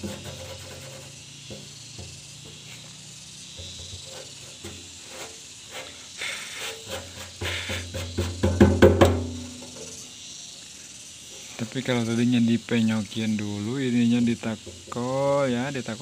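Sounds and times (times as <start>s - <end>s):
faint scratches: 0.0s - 3.0s, 3.6s - 8.3s
hand rubbing soil on metal: 0.0s - 8.5s.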